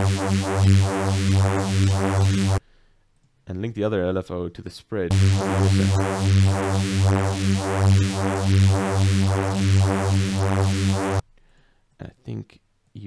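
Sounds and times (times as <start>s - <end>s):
synthesizer bass note phasing: 0.0s - 2.6s, 5.1s - 11.2s.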